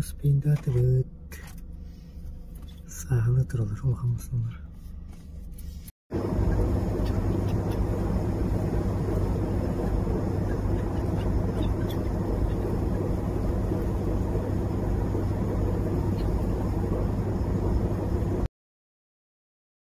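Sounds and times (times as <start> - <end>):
boat engine droning: 6.2 - 18.5.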